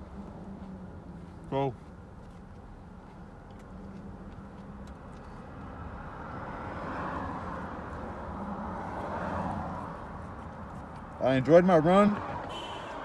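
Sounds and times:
vehicle hum: 0:00.0 - 0:13.0.

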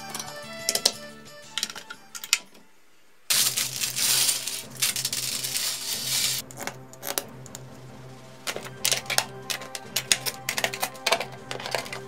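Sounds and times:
plastic pieces clicking: 0:00.0 - 0:02.6, 0:03.3 - 0:07.6, 0:08.5 - 0:12.0
plastic bag crinkling: 0:03.3 - 0:07.3, 0:08.5 - 0:12.0.

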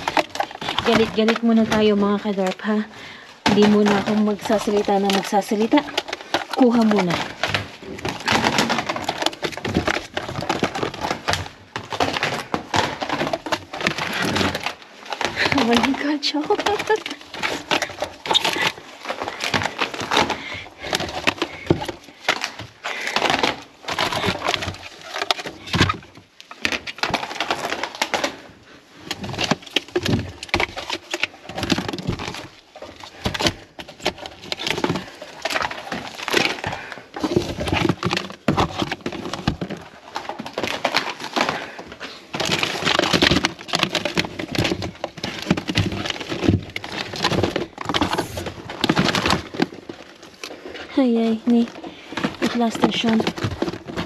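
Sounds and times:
plastic packaging clattering and crinkling: 0:00.0 - 0:54.0.

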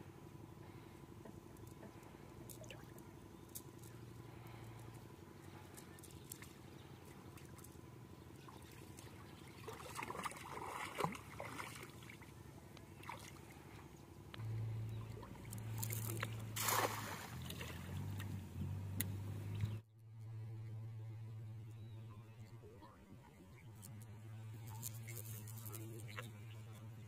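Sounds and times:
legs wading through water: 0:01.8 - 0:18.4
net splashing into water: 0:08.6 - 0:12.2, 0:15.7 - 0:18.3
steady low rumble: 0:12.0 - 0:27.0.

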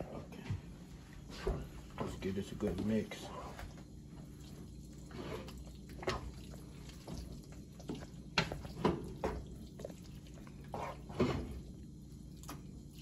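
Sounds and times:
spoon squelching thick food: 0:04.4 - 0:13.0.

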